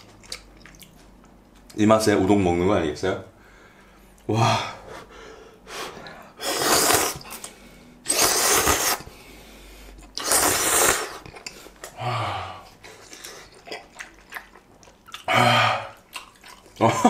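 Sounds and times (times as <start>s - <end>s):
person slurping noodles: 6.0s - 7.5s, 8.1s - 9.2s, 10.2s - 11.6s.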